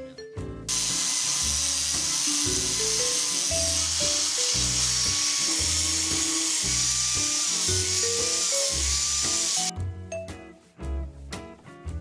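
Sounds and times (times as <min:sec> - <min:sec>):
angle grinder grinding steel: 0:00.7 - 0:09.7.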